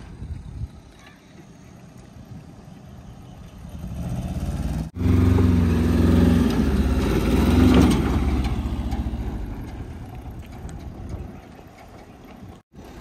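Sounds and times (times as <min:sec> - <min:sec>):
truck engine driving past: 0:03.1 - 0:13.0.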